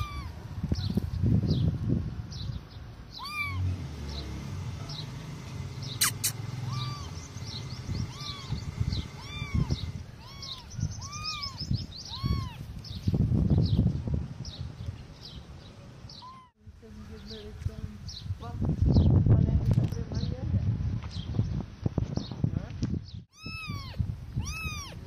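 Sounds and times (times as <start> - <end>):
kittens mewing: 0.0 - 0.4, 3.1 - 3.7, 6.0 - 12.7, 16.2 - 16.6, 23.3 - 25.0.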